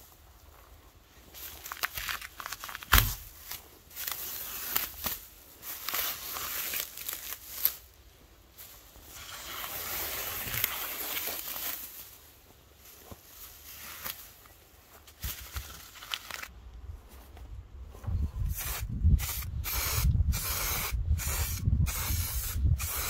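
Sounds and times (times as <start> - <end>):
plastic sheeting crinkling: 0.5 - 16.5.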